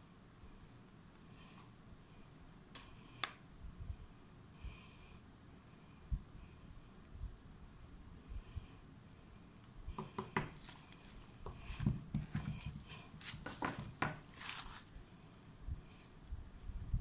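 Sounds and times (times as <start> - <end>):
plastic rustling and crinkling: 10.6 - 15.0.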